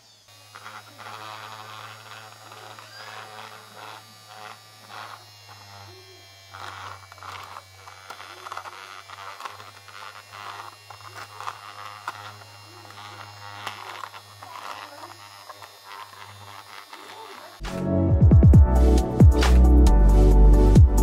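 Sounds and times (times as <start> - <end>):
small electric motor humming: 0.0 - 17.6.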